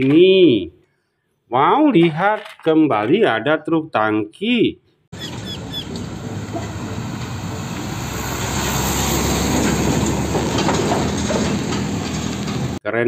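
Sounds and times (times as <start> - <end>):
tyre and road noise: 5.1 - 12.8
truck engine running: 5.2 - 12.8.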